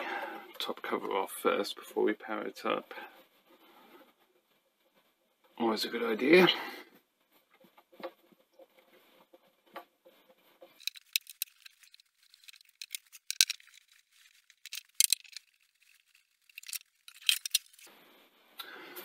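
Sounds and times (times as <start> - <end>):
metal cover clicking and rattling: 10.8 - 17.9.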